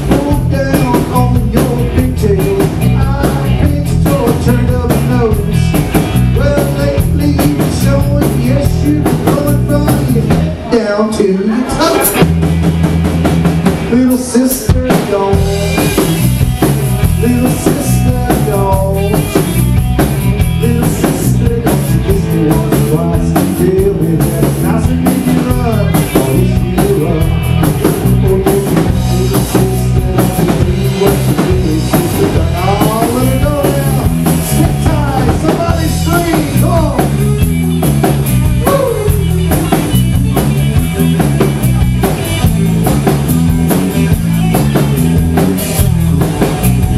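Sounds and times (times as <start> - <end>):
drum kit beat: 0.0 - 10.6, 11.9 - 46.9
electric bass: 0.0 - 46.9
electric guitar lead: 0.0 - 46.9.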